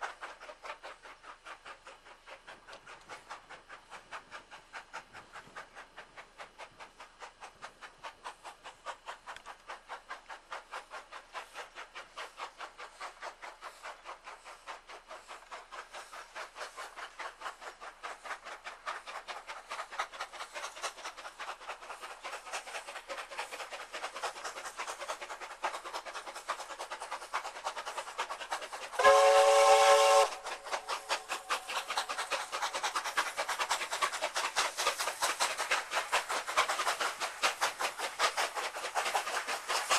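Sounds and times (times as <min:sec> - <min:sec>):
steam locomotive exhaust beating: 0:00.0 - 0:39.9
steam whistle blast: 0:29.0 - 0:30.5.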